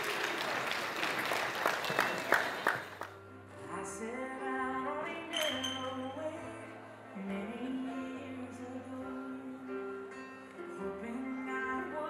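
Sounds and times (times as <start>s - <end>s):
people applauding: 0.0s - 3.2s
song with singing: 3.6s - 12.0s
sharp glass clinks: 5.3s - 6.0s.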